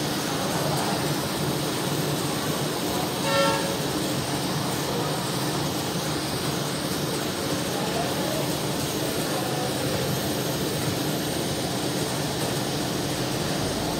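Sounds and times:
gas torch hissing: 0.0s - 13.9s
horn-like toot: 3.2s - 3.8s.

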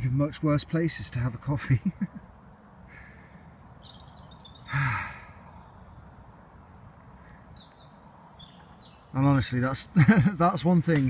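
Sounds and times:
distant road traffic hum: 0.0s - 11.0s
faint bird chirps: 2.8s - 6.2s, 7.0s - 9.5s
man sighing: 4.7s - 5.5s.

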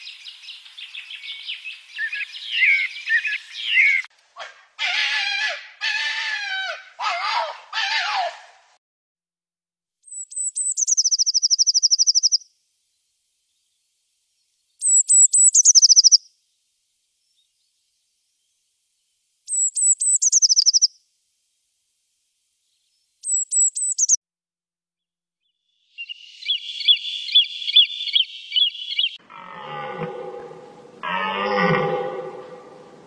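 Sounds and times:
blue tit singing: 10.1s - 12.4s, 14.8s - 16.2s, 19.5s - 20.9s, 23.2s - 24.2s, 26.0s - 29.2s.

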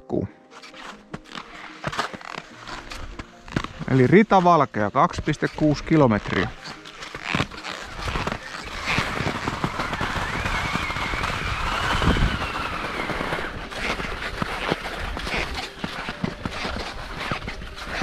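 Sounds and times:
skis sliding on snow: 0.5s - 18.0s
high squeal: 5.3s - 17.6s.

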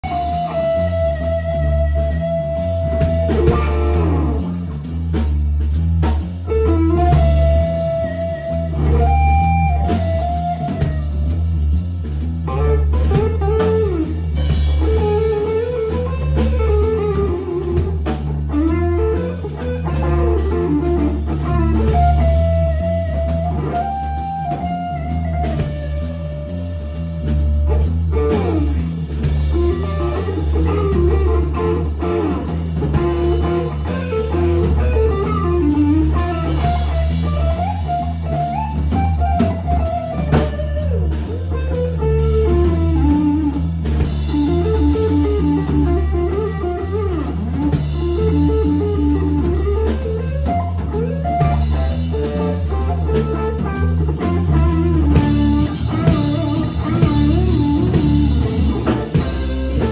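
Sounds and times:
electric guitar melody: 0.0s - 59.9s
rock band playing live: 0.0s - 59.9s.

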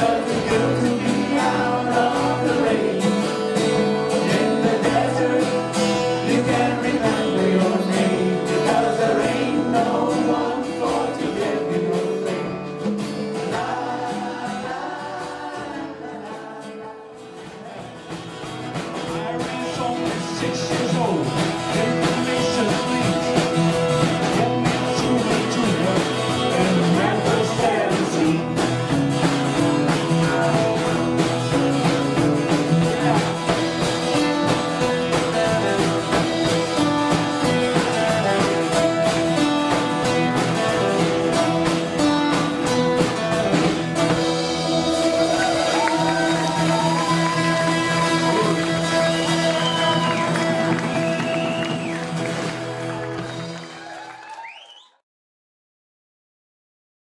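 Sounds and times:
women singing: 0.0s - 3.4s, 4.1s - 12.6s, 13.4s - 17.3s
live band playing: 0.0s - 54.4s.

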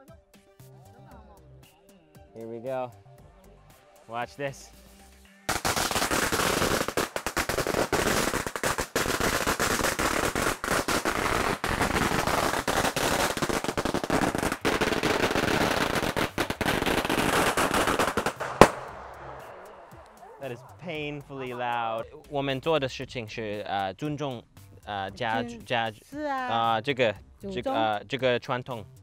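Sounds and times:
firecrackers banging: 5.5s - 20.4s.

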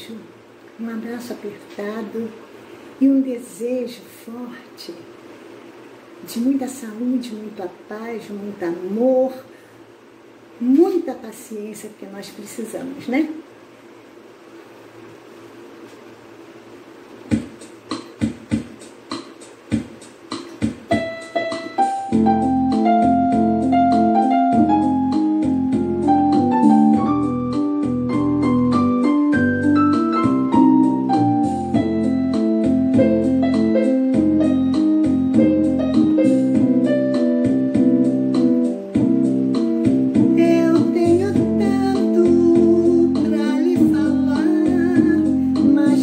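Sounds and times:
steady beat: 17.2s - 46.0s
electronic keyboard piano melody: 18.0s - 46.0s.

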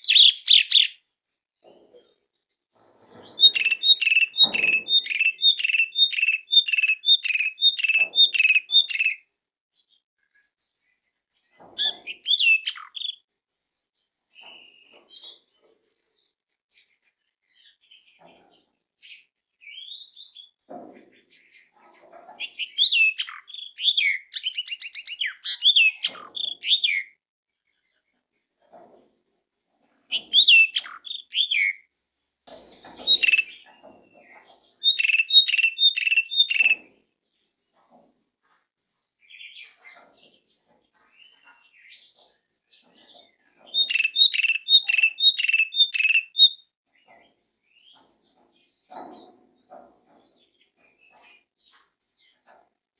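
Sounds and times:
starling singing whistled notes: 3.2s - 9.2s, 33.0s - 33.6s, 34.8s - 36.8s, 43.7s - 46.7s.

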